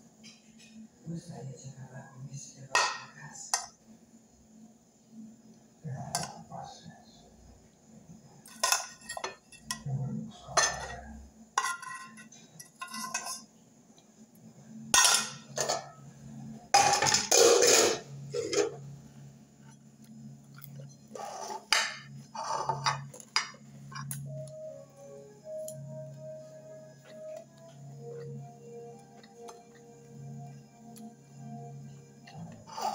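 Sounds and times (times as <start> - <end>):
metal pot and utensils clinking: 8.4 - 13.5, 14.9 - 16.0, 16.7 - 18.8, 21.2 - 24.4.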